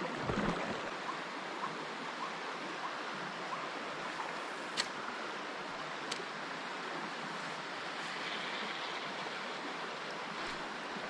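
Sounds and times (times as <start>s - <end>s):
river flowing: 0.0s - 11.0s.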